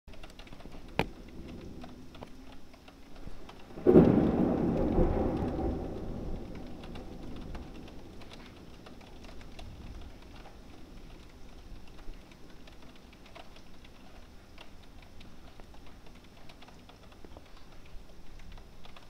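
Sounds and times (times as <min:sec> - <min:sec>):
rain drops falling: 0:00.1 - 0:19.0
thunderclap rumbling: 0:00.3 - 0:02.5, 0:03.1 - 0:16.4
sharp crack: 0:03.4 - 0:11.6.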